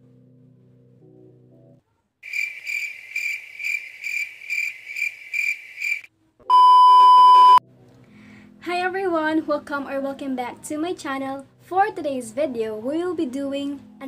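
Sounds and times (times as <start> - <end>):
soft background music: 0.0 - 2.2, 7.6 - 14.0
cricket chirping: 2.2 - 6.1.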